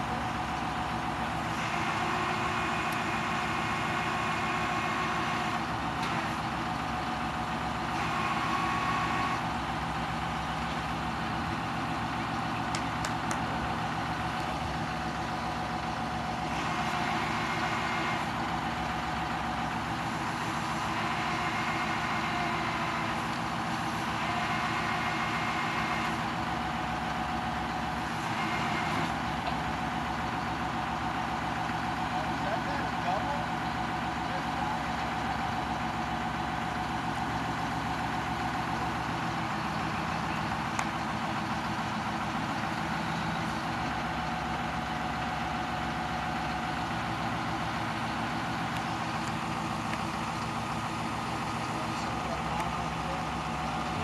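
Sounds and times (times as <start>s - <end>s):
truck engine running: 0.0s - 54.0s
crane hydraulic whine: 0.2s - 32.4s.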